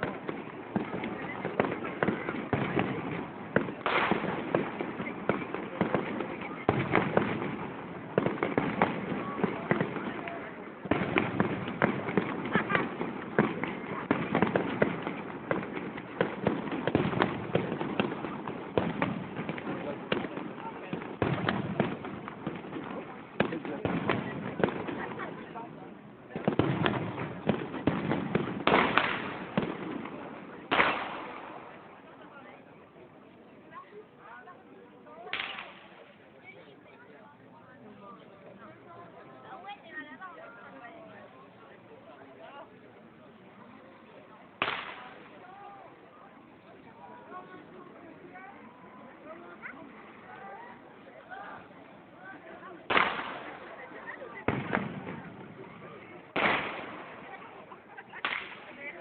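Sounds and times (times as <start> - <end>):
fireworks bangs and pops: 0.0 - 32.8, 35.2 - 36.6, 44.0 - 45.8, 49.6 - 59.0.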